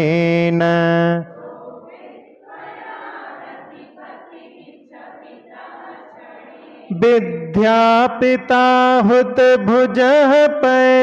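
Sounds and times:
group chanting: 1.0s - 7.2s.

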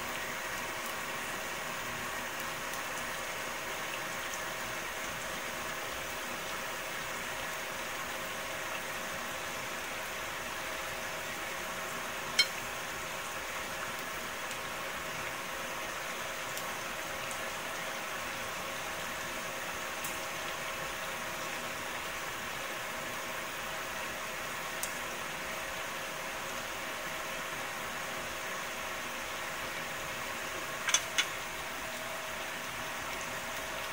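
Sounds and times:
oil sizzling in frying pan: 0.0s - 33.9s
oil popping: 30.8s - 31.4s.

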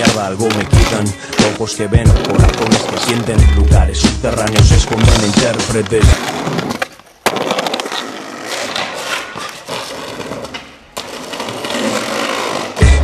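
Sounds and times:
skateboard trucks grinding: 0.0s - 13.0s
skateboard wheels rolling on stone: 0.0s - 13.0s
skateboard knocking on ledge: 2.1s - 6.2s.

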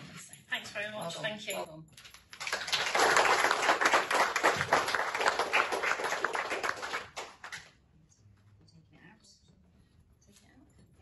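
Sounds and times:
people clapping: 2.1s - 7.8s.

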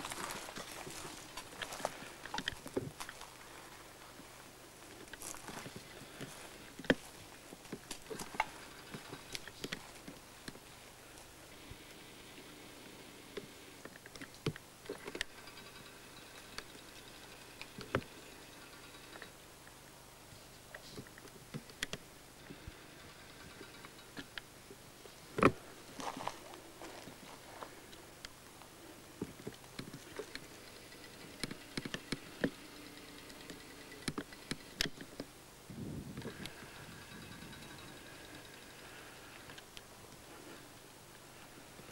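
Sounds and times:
footsteps on stony ground: 0.0s - 10.6s, 25.4s - 30.0s
twigs crackling underfoot: 0.0s - 11.6s, 25.1s - 35.2s.

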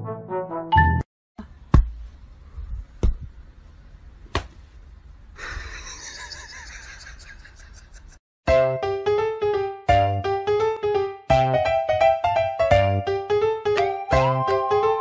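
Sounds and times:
music: 0.0s - 1.1s, 8.5s - 15.0s
sharp smacks: 4.3s - 4.6s.

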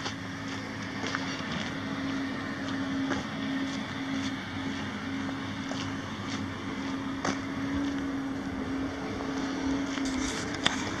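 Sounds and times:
diesel truck engine idling: 0.0s - 11.0s.

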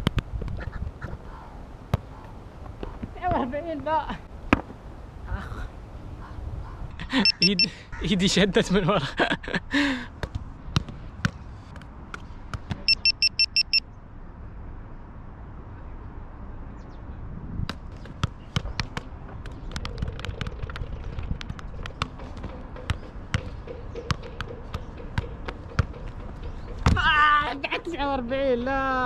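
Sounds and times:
wind rumble on microphone: 0.0s - 3.3s, 16.8s - 24.0s
short high electronic beeps: 7.2s - 7.7s, 12.9s - 13.8s
football tapping on foot: 21.3s - 27.0s.

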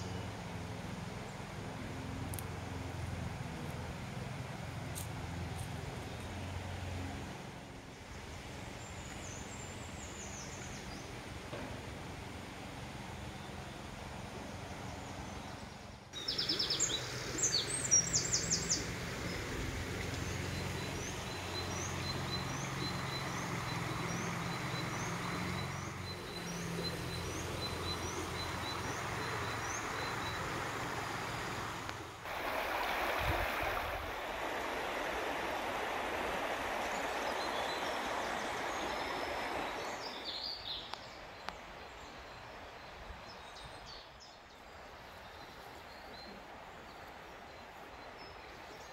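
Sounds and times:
river water flowing: 0.0s - 48.9s
birds singing: 13.2s - 31.6s, 34.1s - 48.9s.

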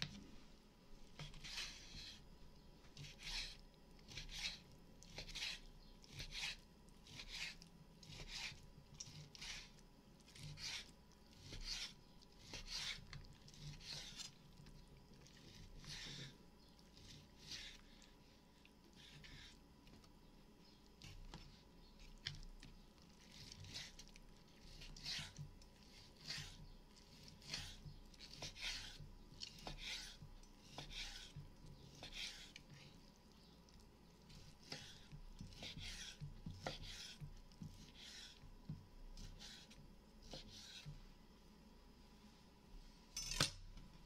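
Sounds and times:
knife slicing meat: 1.2s - 2.2s, 3.0s - 14.4s, 15.2s - 17.9s, 23.2s - 32.9s, 34.3s - 38.5s, 39.2s - 40.9s.

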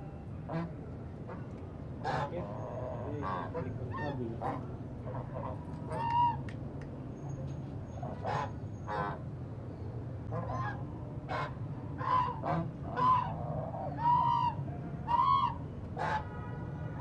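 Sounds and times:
swans honking: 10.3s - 16.3s.

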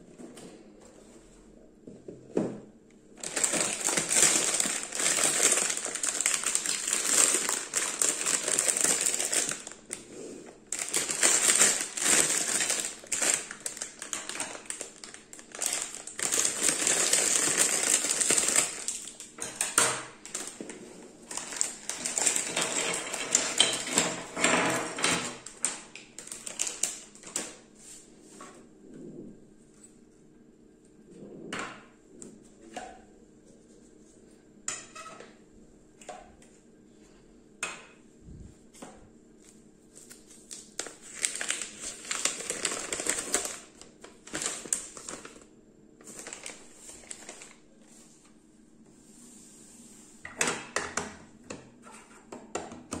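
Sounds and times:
plastic bags crinkling: 3.2s - 27.6s, 40.0s - 47.9s.

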